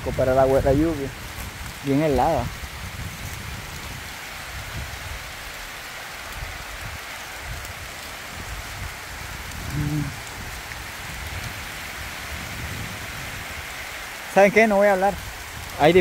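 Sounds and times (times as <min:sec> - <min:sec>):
steady rain hiss: 0:00.0 - 0:16.0
person short vocal sound: 0:09.7 - 0:10.2.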